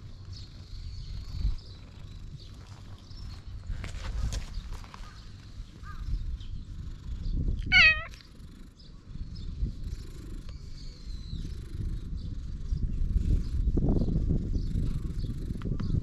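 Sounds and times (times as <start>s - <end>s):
cat meowing: 7.6s - 8.2s.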